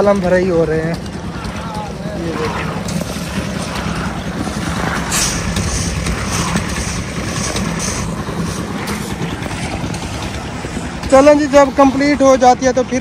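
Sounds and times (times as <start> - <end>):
concrete mixer engine running: 0.0 - 13.0
hiss: 3.1 - 9.3.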